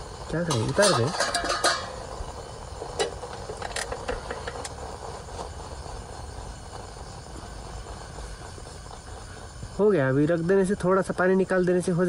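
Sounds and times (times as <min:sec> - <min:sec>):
camp stove low rumble: 0:00.0 - 0:12.0
pot lid metal clinks: 0:00.5 - 0:02.0.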